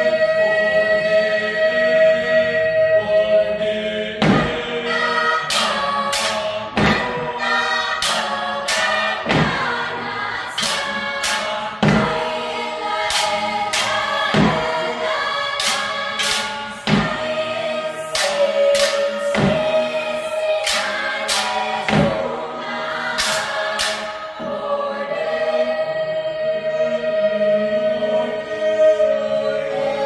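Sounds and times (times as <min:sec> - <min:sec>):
choir singing a cappella: 0:00.0 - 0:30.0
sticks thumping on floor: 0:10.6 - 0:12.2
wooden sticks clacking: 0:15.5 - 0:17.4, 0:18.1 - 0:19.7, 0:23.2 - 0:24.2.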